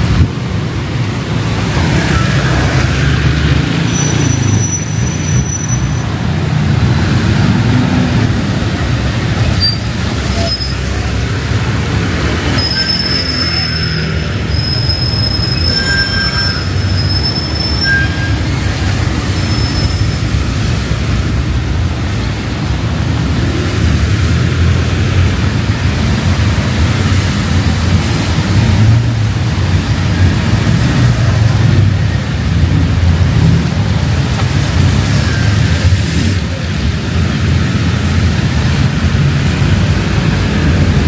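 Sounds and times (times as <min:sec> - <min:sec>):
city traffic: 0:00.0 - 0:41.0
heavy rain: 0:00.0 - 0:41.0
thin high squeal: 0:12.6 - 0:18.5.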